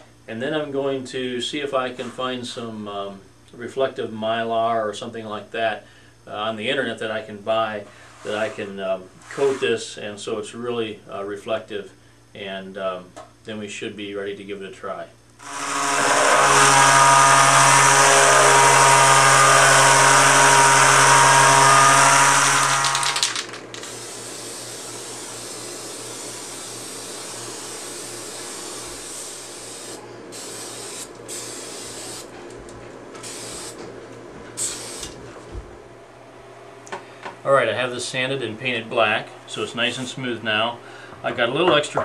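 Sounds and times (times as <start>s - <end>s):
electric palm sander: 15.4s - 32.3s
spray-paint can hissing: 23.8s - 32.3s, 33.2s - 33.8s, 34.6s - 35.1s.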